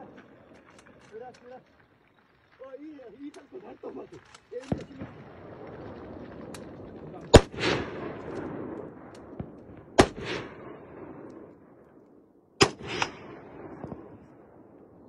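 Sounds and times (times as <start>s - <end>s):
softer second report: 0.0s - 5.1s
gunshots: 2.7s - 11.7s, 12.6s - 14.5s.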